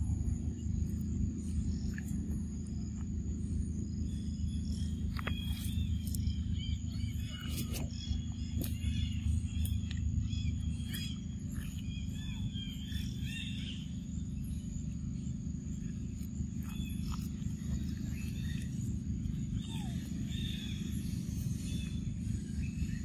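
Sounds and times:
high insect whine: 0.0 - 23.0
low rumble: 0.0 - 23.0
small birds chirping: 0.0 - 23.0.

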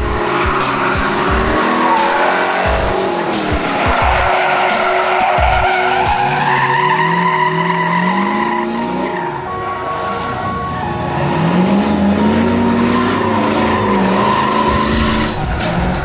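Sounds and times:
tires screeching on asphalt: 0.0 - 16.0
truck engine revving: 0.0 - 16.0.

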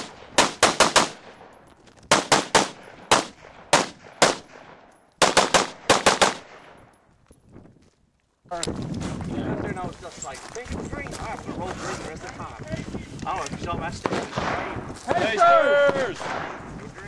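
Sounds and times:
gunshots with echo: 0.0 - 1.5, 2.1 - 6.7, 14.0 - 14.8, 16.0 - 16.7.

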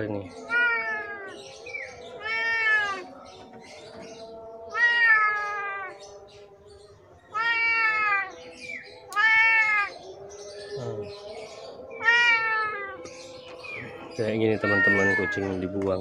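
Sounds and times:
kitten meowing loudly: 0.5 - 1.4, 2.2 - 3.0, 4.7 - 5.9, 7.3 - 8.3, 9.1 - 9.9, 12.0 - 13.0, 14.6 - 15.6.

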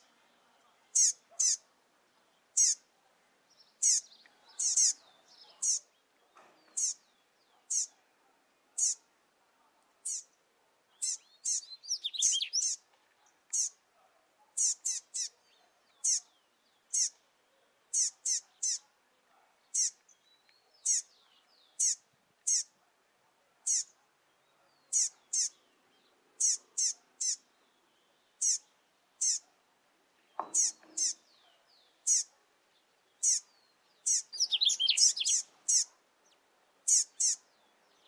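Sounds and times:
fledgling bird calling: 1.0 - 1.6, 2.6 - 2.8, 3.8 - 5.0, 11.0 - 12.8, 14.6 - 15.4, 16.9 - 17.2, 17.9 - 18.8, 19.7 - 20.0, 20.8 - 21.1, 21.8 - 22.7, 24.9 - 25.6, 26.4 - 27.5, 28.4 - 29.5, 30.4 - 31.3, 32.0 - 32.3, 33.2 - 35.9, 36.9 - 37.5.

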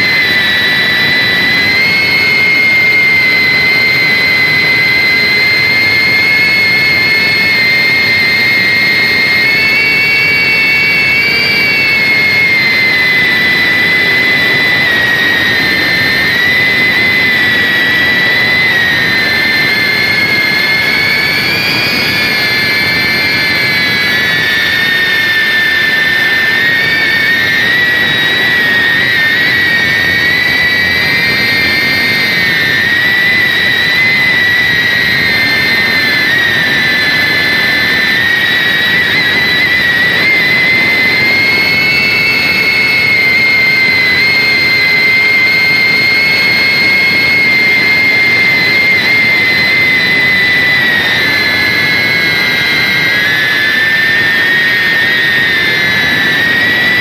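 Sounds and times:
drone motors high whine: 0.0 - 57.0.

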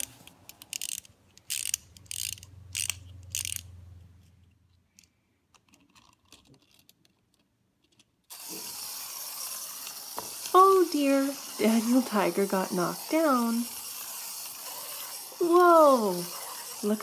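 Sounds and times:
clockwork ratchet clicking: 0.0 - 3.7, 8.3 - 17.0
toy train motor whirring: 0.0 - 3.8, 8.3 - 17.0.

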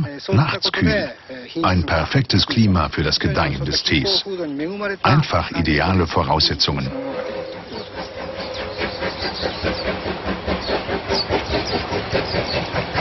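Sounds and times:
steam locomotive chuffing: 0.0 - 4.3, 5.1 - 13.0
hiss of steam: 6.9 - 13.0.

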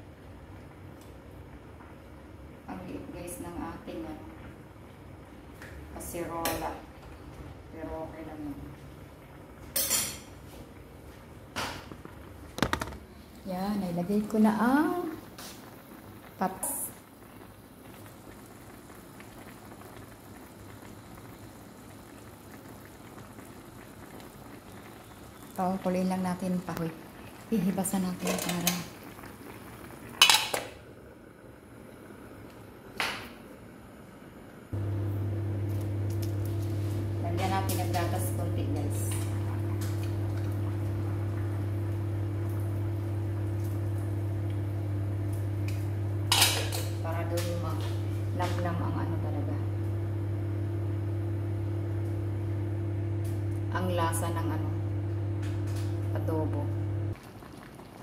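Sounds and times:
faint kitchen sounds: 0.0 - 58.0
pot bubbling with small pops: 4.3 - 7.6, 8.6 - 31.2, 35.6 - 58.0
steady low hum: 34.4 - 57.2.

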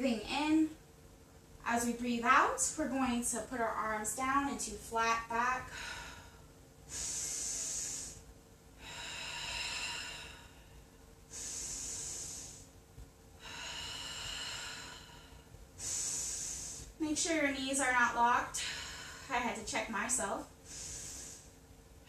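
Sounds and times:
woman breathing deeply: 5.6 - 17.4, 18.1 - 19.6, 20.6 - 21.8.

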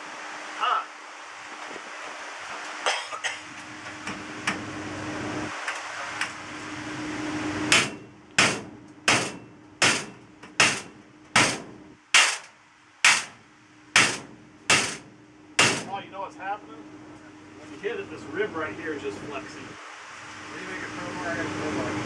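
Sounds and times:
hammer striking sheet metal: 7.7 - 13.4, 14.0 - 16.0.

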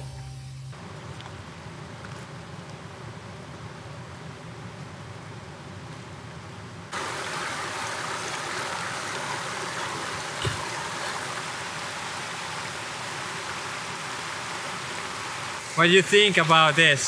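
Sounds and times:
river water running over stones: 6.9 - 17.0.

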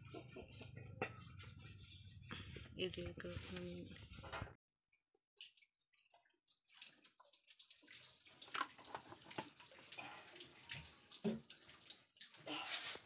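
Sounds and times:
oil crackling and popping in pan: 5.4 - 13.0.

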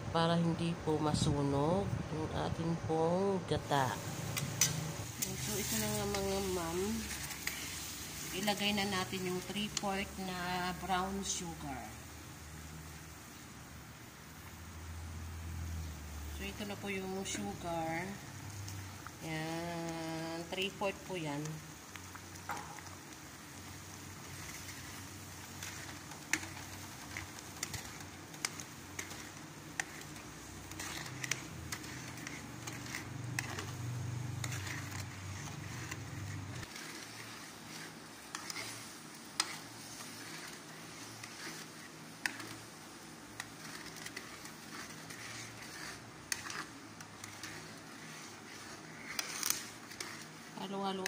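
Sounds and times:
liquid boiling in a wok: 3.7 - 51.0
ladle scraping a pan: 4.1 - 11.2, 23.5 - 51.0.

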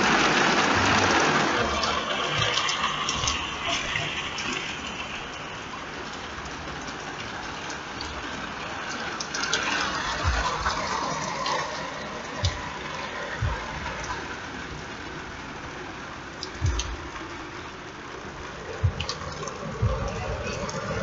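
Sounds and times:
rain falling: 0.0 - 21.0
dull thumps: 16.6 - 17.2.

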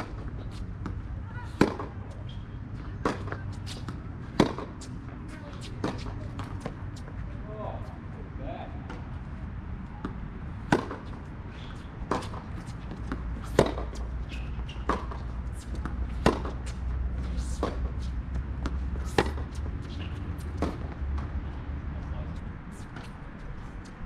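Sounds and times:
tennis ball struck by rackets: 0.0 - 2.0, 3.0 - 7.1, 10.0 - 21.3
tennis ball bouncing on court: 0.0 - 7.2, 9.9 - 21.4.

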